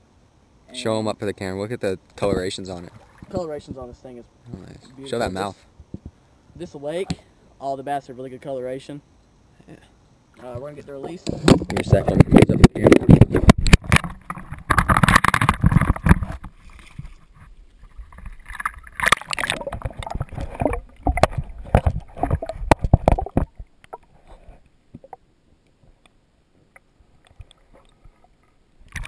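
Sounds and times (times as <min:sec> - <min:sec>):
water splashing and sloshing: 0:02.2 - 0:04.1, 0:10.3 - 0:25.2, 0:26.6 - 0:29.0
faint underwater ticks: 0:09.2 - 0:29.0.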